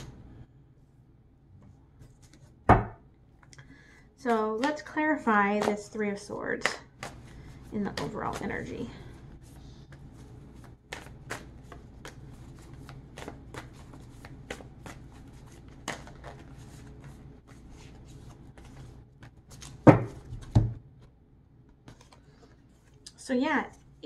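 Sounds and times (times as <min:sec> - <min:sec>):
cards being shuffled: 0:09.4 - 0:21.1, 0:21.7 - 0:23.0.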